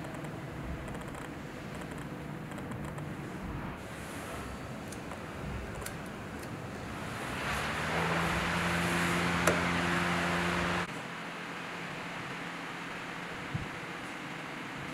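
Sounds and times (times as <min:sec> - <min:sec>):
desk fan running: 0:00.0 - 0:14.9
fan click: 0:04.8 - 0:06.7, 0:09.4 - 0:09.8.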